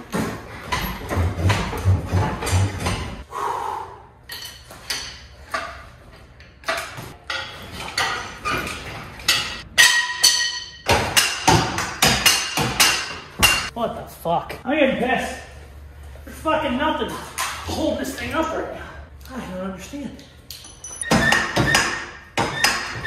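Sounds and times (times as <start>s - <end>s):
sharp metallic knocks and clanks: 0.0s - 3.2s, 4.3s - 13.7s, 20.7s - 23.0s.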